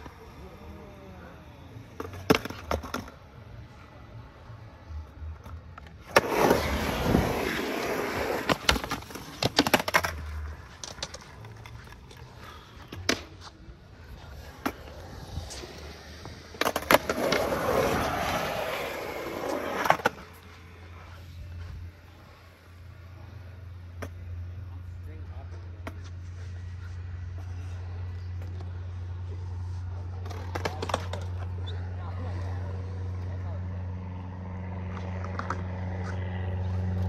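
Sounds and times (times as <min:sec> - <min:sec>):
skateboard wheels rolling on concrete: 0:00.0 - 0:37.0
skateboard wheels clacking on concrete: 0:06.0 - 0:13.6.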